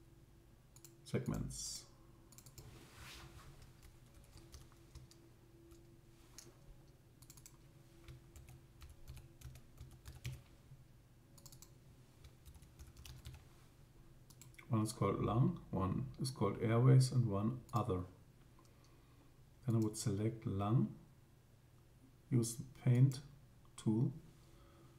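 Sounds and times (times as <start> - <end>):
low steady hum: 0.0 - 24.9
typing on computer keyboard: 3.6 - 5.2, 7.2 - 10.4, 11.4 - 13.4.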